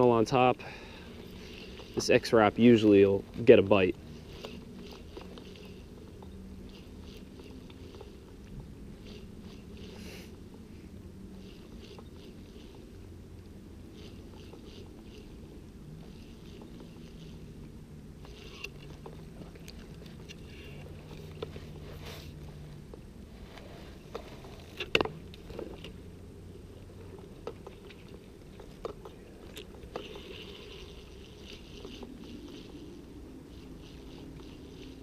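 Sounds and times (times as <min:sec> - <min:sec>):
low background rumble: 0:00.1 - 0:35.0
spinning reel clicking: 0:01.2 - 0:13.1, 0:13.8 - 0:19.2, 0:29.7 - 0:35.0.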